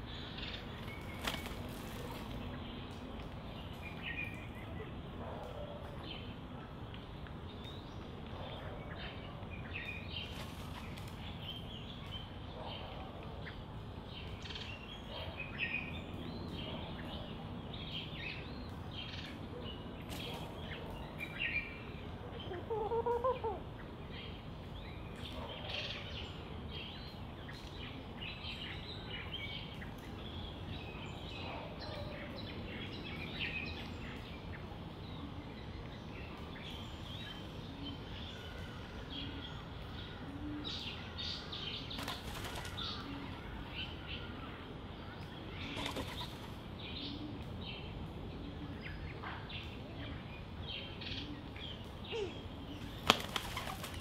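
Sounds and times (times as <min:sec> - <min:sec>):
small birds chirping: 0:00.0 - 0:54.0
doves fluttering wings: 0:00.8 - 0:02.5, 0:10.2 - 0:11.4, 0:41.9 - 0:43.4, 0:45.7 - 0:46.6, 0:52.8 - 0:54.0.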